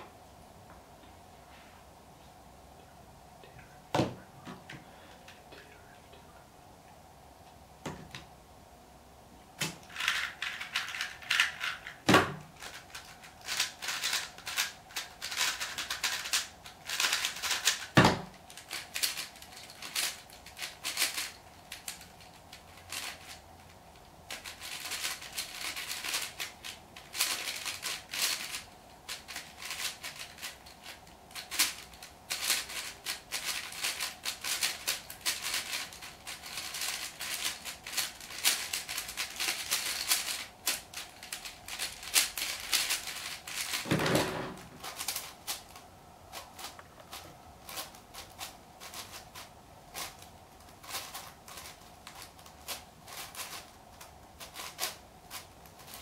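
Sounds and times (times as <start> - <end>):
speedcube clicking: 12.6 - 23.4.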